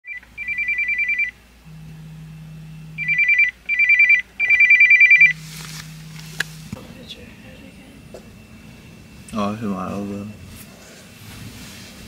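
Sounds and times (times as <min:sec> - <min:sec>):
rapid high alarm beeping: 0:00.1 - 0:06.7
low buzz: 0:01.3 - 0:12.0.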